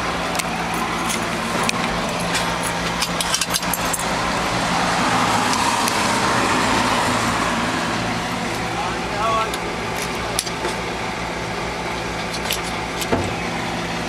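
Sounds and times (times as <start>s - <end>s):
pickup engine idling: 0.0s - 14.0s
sharp clicks and rattles: 0.2s - 4.2s.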